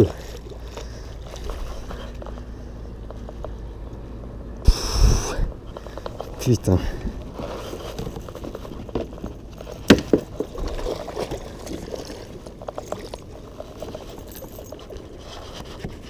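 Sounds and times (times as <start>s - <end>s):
light clicks of tackle: 0.0s - 4.0s, 7.0s - 16.0s
fish splashing water: 10.0s - 13.8s.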